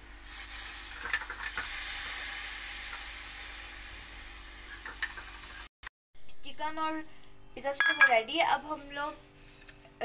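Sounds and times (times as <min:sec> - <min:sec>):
chicken sizzling in a pot: 0:00.0 - 0:05.7.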